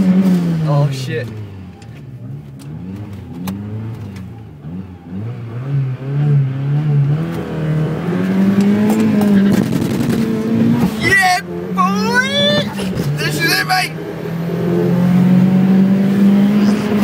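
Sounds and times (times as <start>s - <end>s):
car engine revving: 0.0s - 17.0s.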